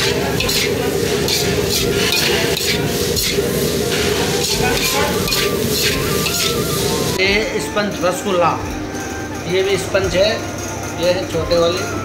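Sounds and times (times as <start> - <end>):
metal spatula scraping a wok: 0.0 - 7.2
steady hum: 0.0 - 11.0.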